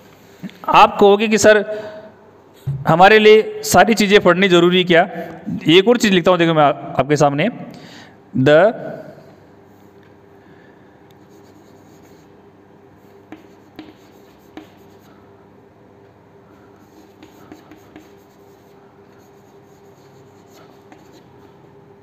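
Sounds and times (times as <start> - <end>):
chalk tapping on board: 11.2 - 12.3, 13.0 - 15.1, 16.8 - 21.4
chalk scratching on chalkboard: 11.2 - 12.4, 13.0 - 15.2, 16.6 - 21.6.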